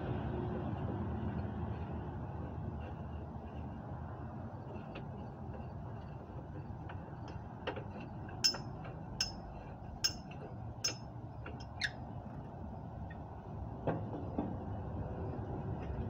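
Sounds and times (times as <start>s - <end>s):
steady low hum: 0.0s - 16.0s
metal hand tool clinks: 8.4s - 11.8s.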